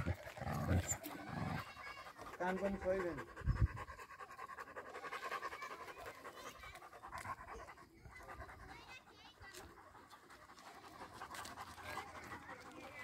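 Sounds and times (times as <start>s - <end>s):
dog panting rapidly: 0.0s - 13.0s.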